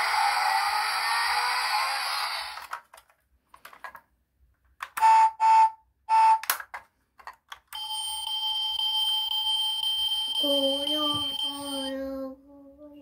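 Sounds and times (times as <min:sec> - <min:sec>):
electronic horn beeps: 0:05.0 - 0:06.5.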